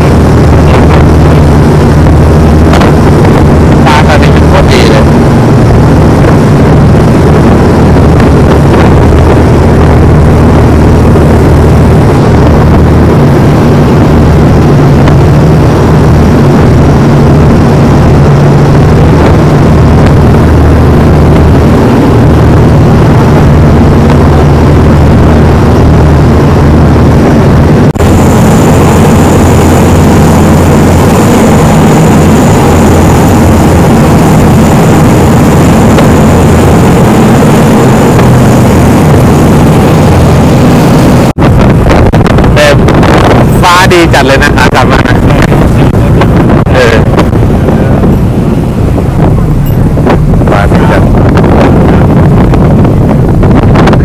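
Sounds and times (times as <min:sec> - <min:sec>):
boat engine running: 0:00.0 - 0:54.0
thin high whine: 0:00.0 - 0:54.0.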